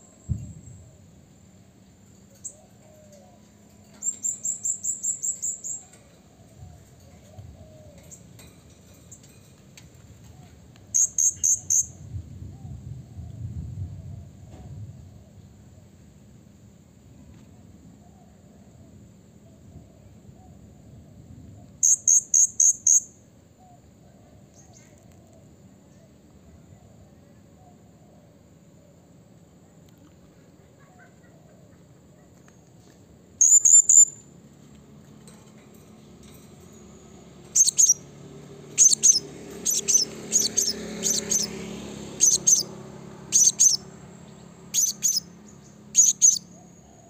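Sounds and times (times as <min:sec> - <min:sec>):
parrot sharp high chirps: 0:04.0 - 0:05.8, 0:10.9 - 0:11.9, 0:21.8 - 0:23.1, 0:33.4 - 0:34.3, 0:37.5 - 0:38.0, 0:38.7 - 0:41.5, 0:42.2 - 0:42.7, 0:43.3 - 0:43.9, 0:44.7 - 0:45.3, 0:45.9 - 0:46.6.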